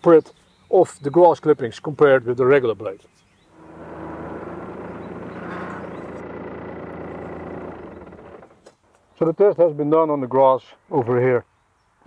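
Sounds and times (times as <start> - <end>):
tractor diesel engine running: 3.6 - 8.6.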